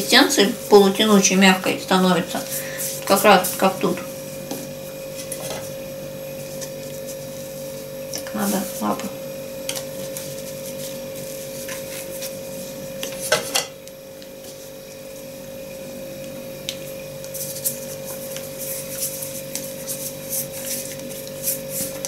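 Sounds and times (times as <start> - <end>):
faint steady hum: 0.0 - 22.0
hands rubbing dough: 5.1 - 9.1, 9.8 - 13.3, 17.2 - 22.0.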